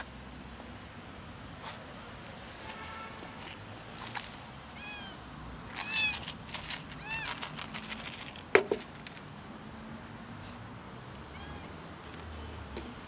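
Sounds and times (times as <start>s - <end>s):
cat meowing: 4.7s - 5.2s, 11.3s - 11.8s
plastic container clack on wood: 5.7s - 9.2s.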